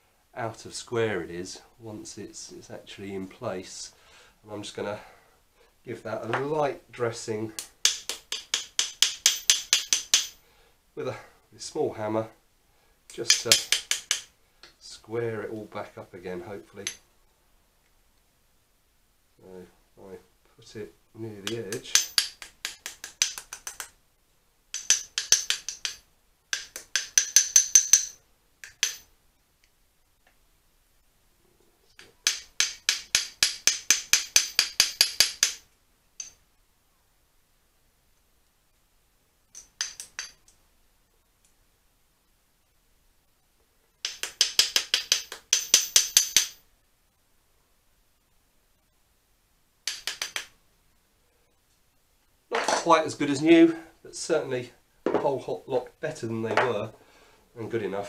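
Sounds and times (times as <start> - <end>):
small hammer tapping metal clamp: 7.6 - 10.4, 13.3 - 14.3, 21.5 - 23.9, 24.7 - 29.1, 32.0 - 35.6, 36.2 - 36.4, 39.5 - 40.6, 44.0 - 46.6, 49.8 - 50.5.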